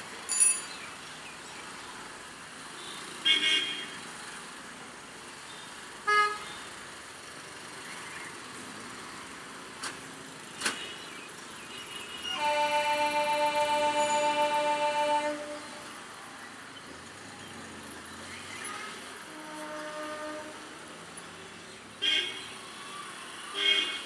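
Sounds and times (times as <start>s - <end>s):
traffic engines humming: 0.0s - 24.0s
car horn toots: 12.2s - 15.6s
chord of pitched tones: 12.4s - 15.9s.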